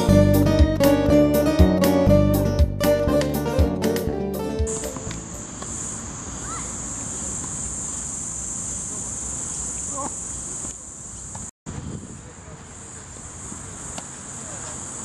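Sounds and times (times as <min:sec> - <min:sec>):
guitar music: 0:00.0 - 0:05.5
high-pitched insect chorus: 0:04.7 - 0:11.5, 0:12.6 - 0:15.0.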